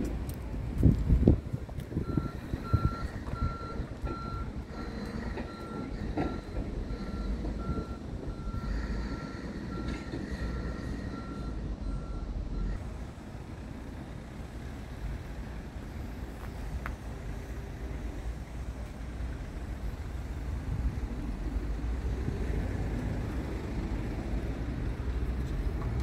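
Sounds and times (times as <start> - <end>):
continuous low rumble: 0.0 - 26.0
reversing alarm beeping: 2.0 - 12.8.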